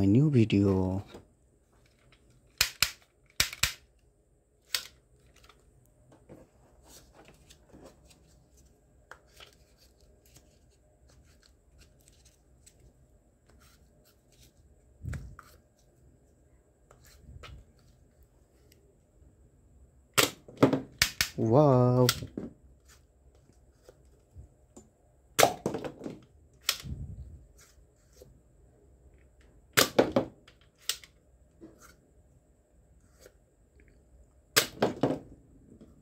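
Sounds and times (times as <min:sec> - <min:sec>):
toy gun plastic clicks: 0:02.5 - 0:03.9.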